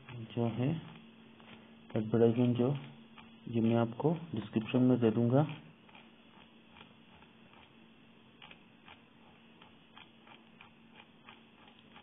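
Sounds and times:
faint steady hum: 0:00.0 - 0:12.0
faint ticks: 0:05.4 - 0:07.8, 0:08.4 - 0:12.0.

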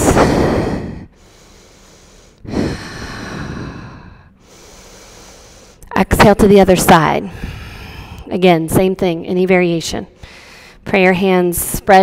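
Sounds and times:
woman breathing slowly: 0:00.0 - 0:05.9, 0:07.2 - 0:08.3, 0:10.2 - 0:10.9.

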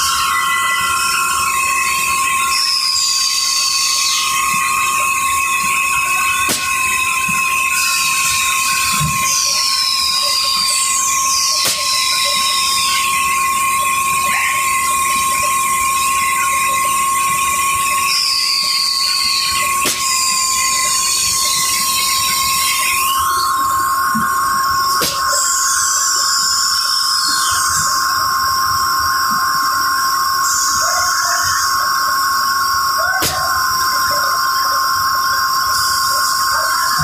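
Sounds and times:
high squeals falling in pitch: 0:00.0 - 0:37.0
printing machine whine: 0:00.0 - 0:37.0.

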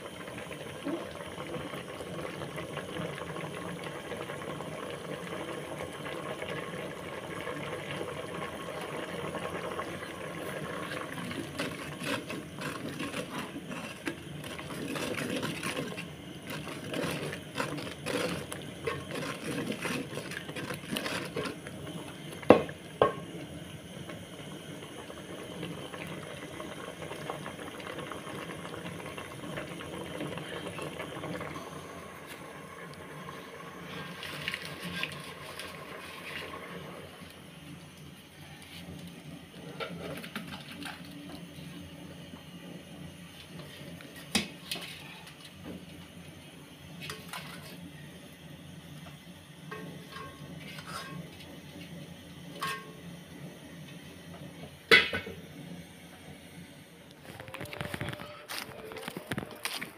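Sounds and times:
sauce bubbling in a pot: 0:00.0 - 0:57.4
wooden stick stirring and scraping: 0:11.1 - 0:21.7.

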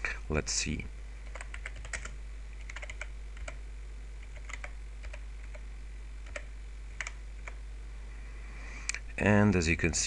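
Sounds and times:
steady low hum: 0:00.0 - 0:10.0
typing on a keyboard: 0:01.3 - 0:03.6, 0:04.2 - 0:05.6, 0:06.3 - 0:07.6.

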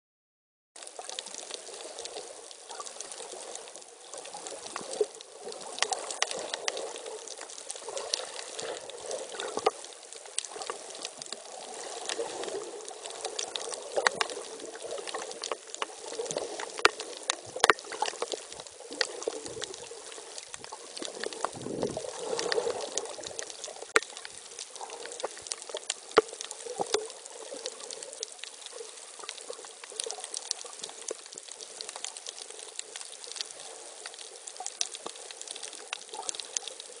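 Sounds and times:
water rushing and gurgling: 0:00.8 - 0:37.0
sharp clicks and pops: 0:12.9 - 0:27.2.

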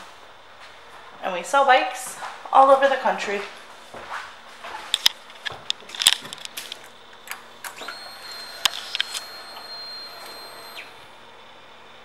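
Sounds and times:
sharp clicks and knocks: 0:04.9 - 0:08.0
fuel pump electric whine: 0:05.0 - 0:12.0.

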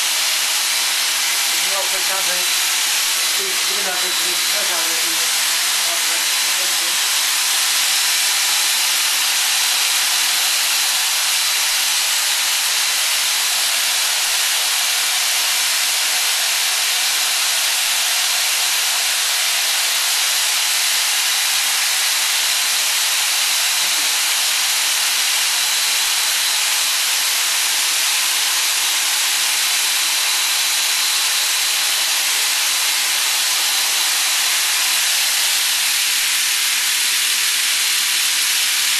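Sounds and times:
motor running with high whine: 0:00.0 - 0:38.9.

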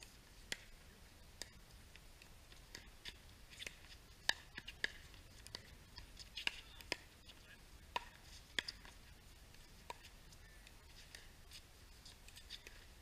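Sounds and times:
paddles hitting plastic ball: 0:01.4 - 0:09.0.

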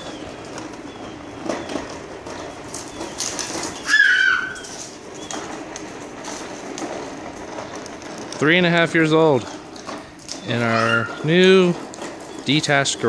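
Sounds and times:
tricycle on concrete floor: 0:00.0 - 0:13.0
toddler squealing: 0:03.8 - 0:04.8, 0:10.6 - 0:11.2.

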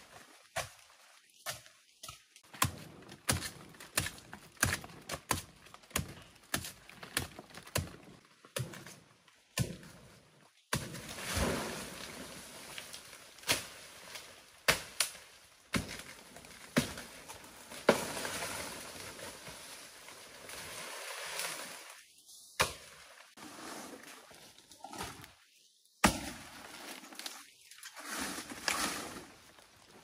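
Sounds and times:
leaves rustling: 0:10.9 - 0:30.0.

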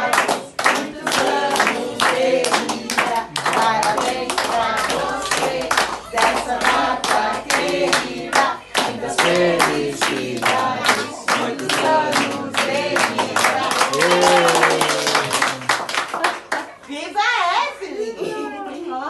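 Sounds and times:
group singing: 0:00.0 - 0:15.2
hands clapping: 0:00.0 - 0:16.8.

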